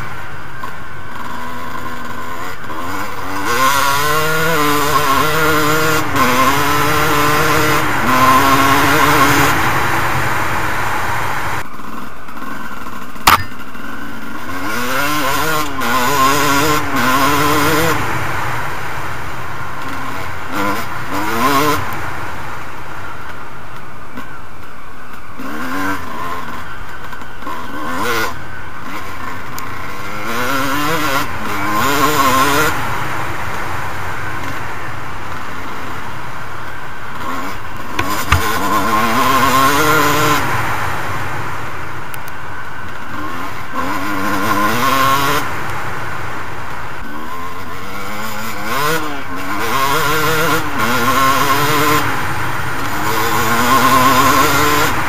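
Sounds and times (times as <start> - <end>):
motocross bike engine revving: 0.0 - 55.0
sharp knock: 13.3 - 13.6, 38.0 - 38.6.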